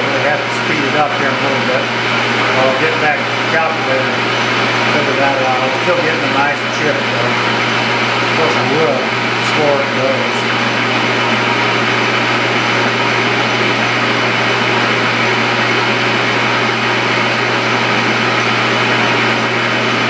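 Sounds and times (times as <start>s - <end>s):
metal lathe running: 0.0s - 20.0s.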